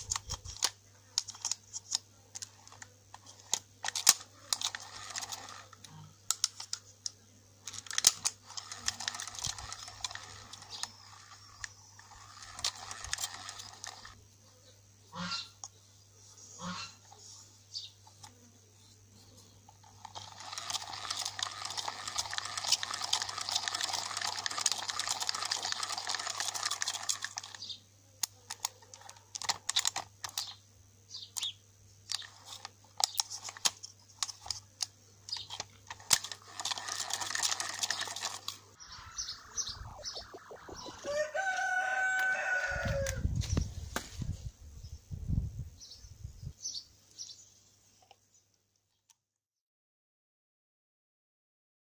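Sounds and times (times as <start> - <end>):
fishing reel gears whirring: 3.4 - 5.8, 7.7 - 14.2, 20.0 - 27.6, 35.9 - 43.2
rooster crowing: 40.8 - 43.4.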